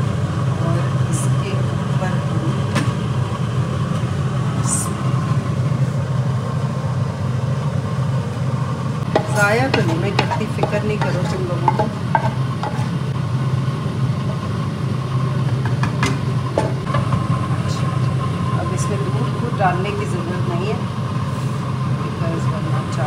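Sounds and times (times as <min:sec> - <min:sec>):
low mechanical hum: 0:00.0 - 0:23.0
spoon scraping a metal pot: 0:09.1 - 0:13.0.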